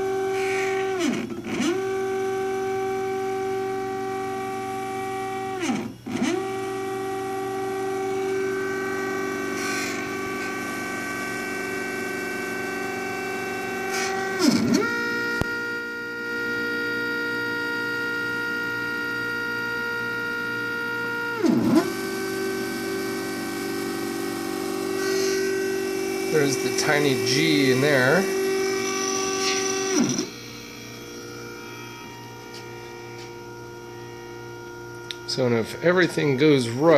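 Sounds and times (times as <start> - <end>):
stepper motors whining: 0.0 - 36.9.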